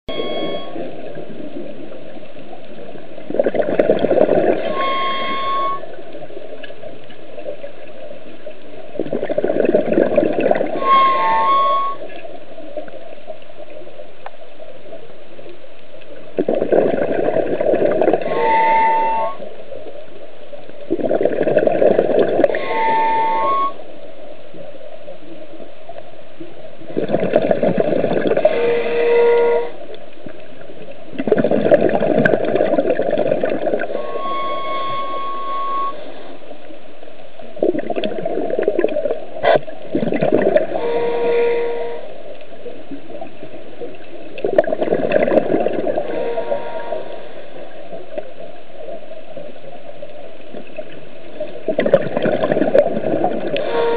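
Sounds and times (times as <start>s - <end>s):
regulator squealing: 0.0s - 0.8s, 4.7s - 5.9s, 22.6s - 23.8s, 33.9s - 36.0s
diver breathing and bubbles: 0.1s - 13.8s, 16.1s - 20.0s, 20.6s - 23.8s, 26.6s - 53.9s
constant hiss: 0.1s - 53.9s.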